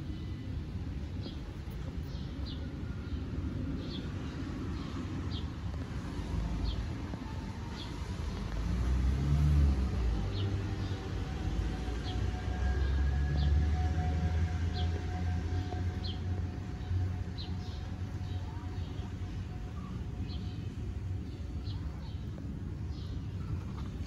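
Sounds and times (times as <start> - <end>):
street traffic rumbling: 0.0 - 24.0
vehicle passing: 3.8 - 18.4.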